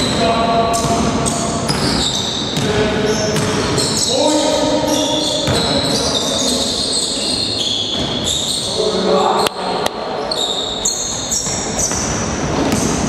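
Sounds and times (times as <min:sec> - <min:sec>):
basketball bouncing on wooden floor: 0:00.8 - 0:04.0, 0:05.4 - 0:06.2, 0:07.9 - 0:08.4, 0:11.8 - 0:13.0.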